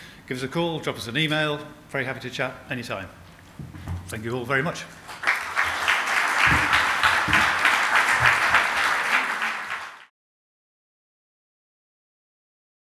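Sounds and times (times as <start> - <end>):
audience applauding: 5.0 - 10.1.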